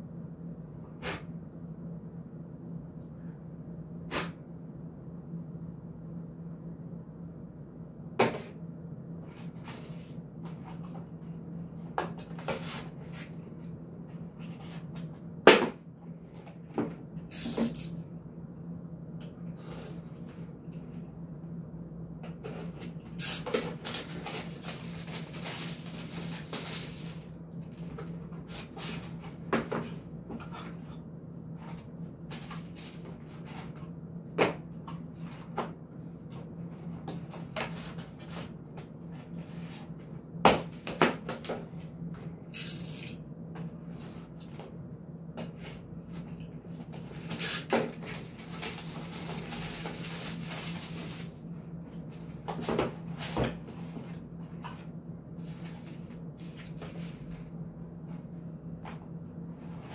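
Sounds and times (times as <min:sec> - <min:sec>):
steady low hum: 0:00.0 - 0:59.9
brief scraping hiss: 0:23.2 - 0:23.5, 0:42.6 - 0:43.2.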